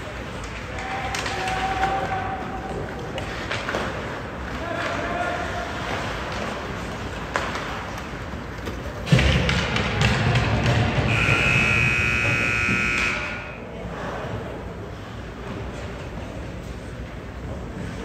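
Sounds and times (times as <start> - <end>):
scoreboard buzzer: 11.1 - 13.6.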